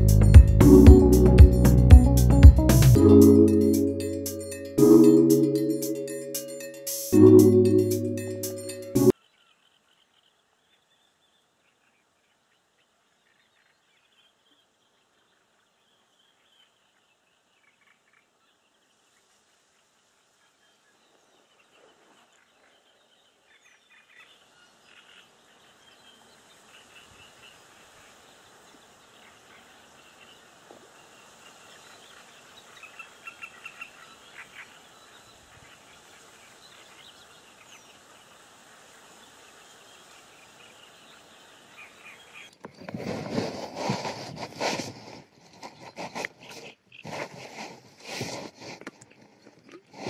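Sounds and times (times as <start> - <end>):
small birds chirping: 20.6 - 42.8.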